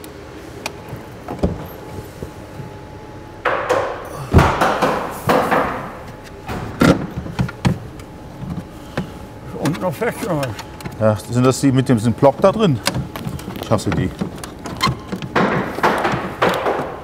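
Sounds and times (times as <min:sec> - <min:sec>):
plastic knocking and rattling: 0:12.9 - 0:17.0.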